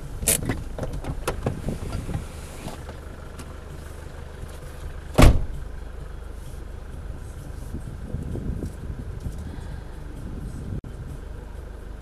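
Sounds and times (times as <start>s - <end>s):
car engine idling: 0.0s - 12.0s
car door shutting: 0.2s - 3.5s, 5.1s - 5.6s.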